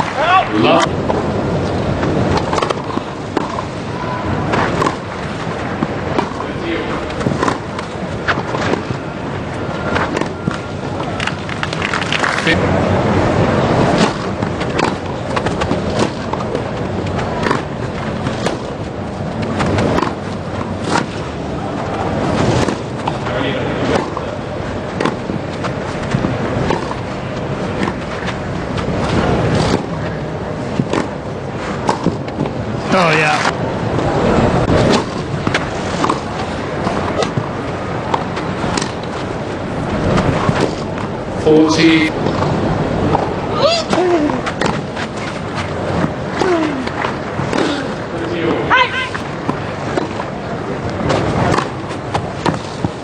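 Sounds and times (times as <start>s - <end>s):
crowd background noise: 0.0s - 53.0s
tennis ball struck with racquets: 2.3s - 3.7s, 4.5s - 9.0s, 13.9s - 16.6s, 17.2s - 18.8s, 19.4s - 21.2s, 22.4s - 24.3s, 24.9s - 27.1s, 27.7s - 32.6s, 34.7s - 39.2s, 43.9s - 48.7s, 49.4s - 50.4s, 51.0s - 53.0s.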